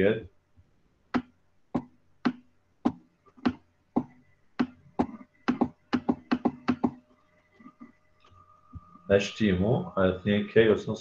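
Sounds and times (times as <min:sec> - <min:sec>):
computer mouse clicks: 0:03.3 - 0:07.0.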